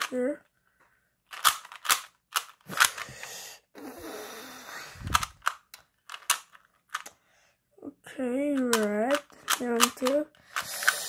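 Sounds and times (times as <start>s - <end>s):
puzzle cube clicking: 1.3s - 3.4s, 5.0s - 7.2s, 8.4s - 11.0s.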